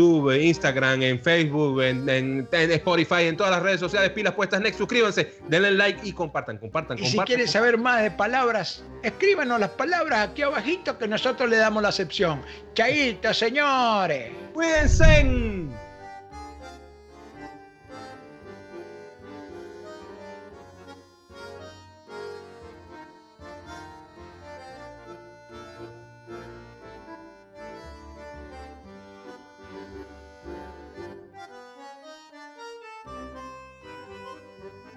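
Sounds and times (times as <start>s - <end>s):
moving bass line: 14.7s - 16.0s.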